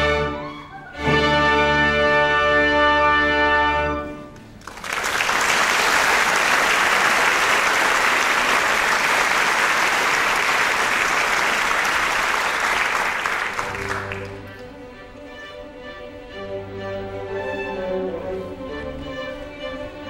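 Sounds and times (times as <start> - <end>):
audience applauding: 4.4 - 14.8.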